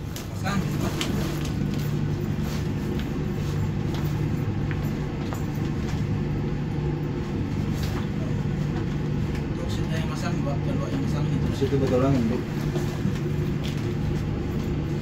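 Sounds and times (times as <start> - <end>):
crinkling suit rustles: 0.0 - 6.1
ship machinery hum: 0.0 - 15.0.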